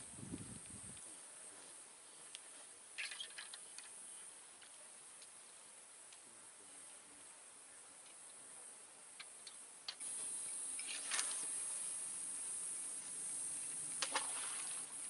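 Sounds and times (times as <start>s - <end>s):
insects buzzing: 9.4s - 15.0s.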